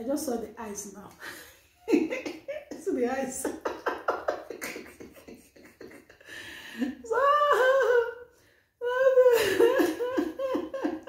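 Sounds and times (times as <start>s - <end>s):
woman making wordless sounds: 7.0s - 8.2s, 8.8s - 11.0s.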